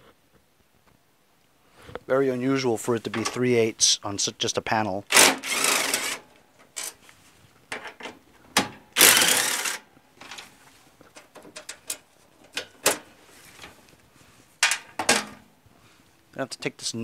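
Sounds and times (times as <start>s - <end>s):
power driver spinning out bolts: 5.1s - 7.0s, 9.0s - 9.9s
clicks and taps of tool handling: 10.2s - 14.0s, 14.6s - 15.4s.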